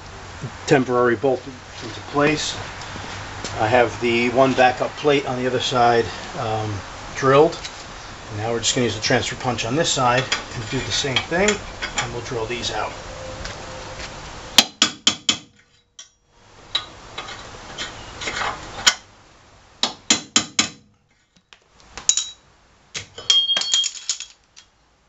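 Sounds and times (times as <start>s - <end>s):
hammer tapping metal punch: 19.8s - 20.8s.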